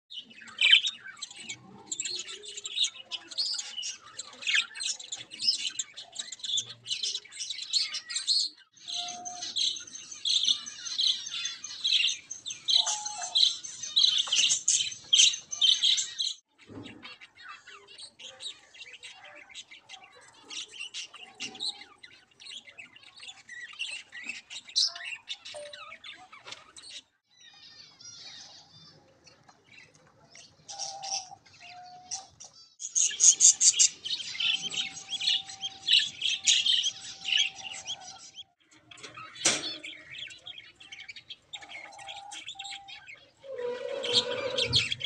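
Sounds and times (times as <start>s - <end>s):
budgerigars chirping: 30.7s - 38.4s.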